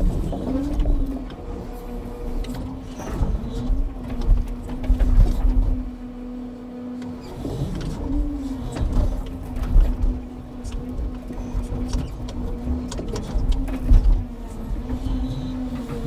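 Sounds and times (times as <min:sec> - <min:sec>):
crane hydraulics humming: 0:00.0 - 0:16.0.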